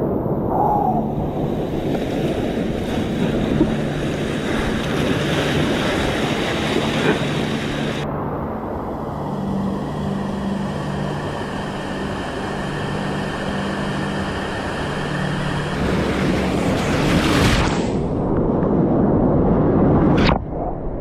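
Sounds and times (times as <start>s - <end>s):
low steady hum: 0.0s - 17.0s
water splashing around kayak: 1.5s - 8.0s
river rapids rushing: 2.2s - 8.0s.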